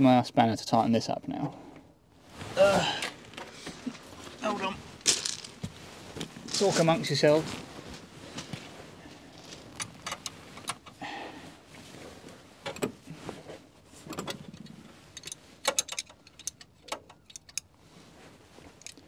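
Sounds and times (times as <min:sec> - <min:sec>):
small metallic clicks and taps: 0:14.1 - 0:17.7.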